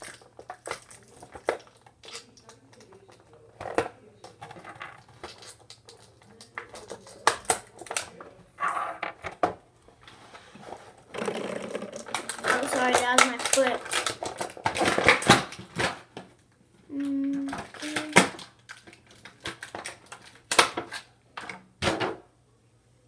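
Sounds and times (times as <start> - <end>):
cardboard and plastic crinkling: 10.3 - 16.0.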